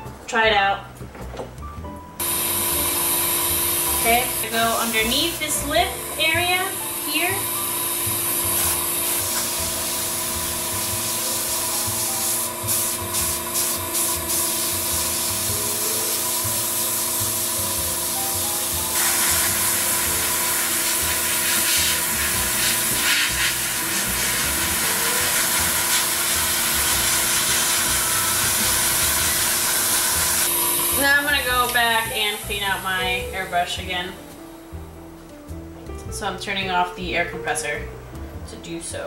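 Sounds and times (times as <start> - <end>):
airbrush hissing: 2.2 - 33.2
air compressor humming: 2.2 - 34.0.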